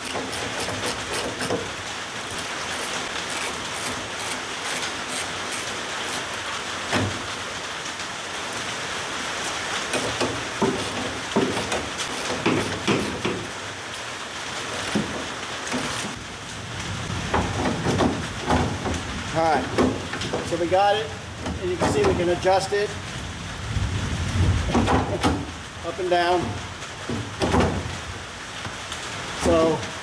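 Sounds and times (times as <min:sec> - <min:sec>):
steady hiss: 0:00.0 - 0:30.0.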